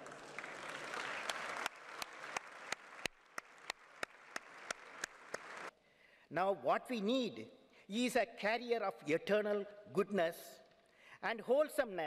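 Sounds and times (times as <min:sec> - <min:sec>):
audience applause: 0:00.0 - 0:05.7.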